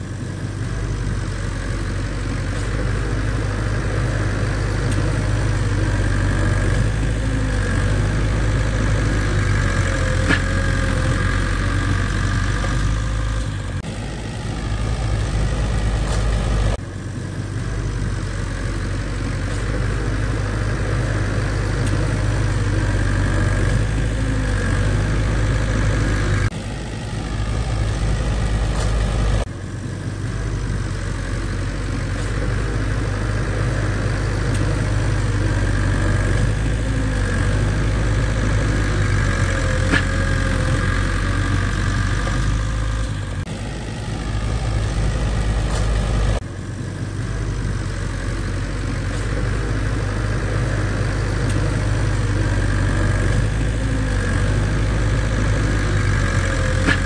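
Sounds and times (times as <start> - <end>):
bulldozer diesel engine rumbling: 0.0 - 57.0.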